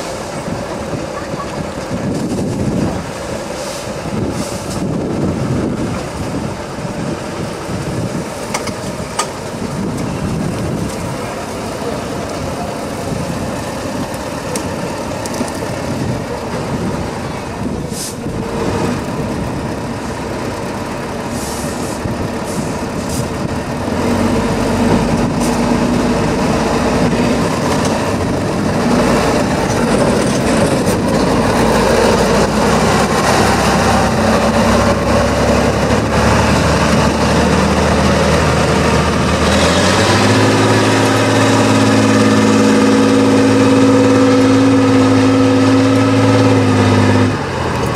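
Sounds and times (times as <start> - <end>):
truck diesel engine working hard: 0.0 - 47.9
sharp clicks and knocks: 8.5 - 9.4.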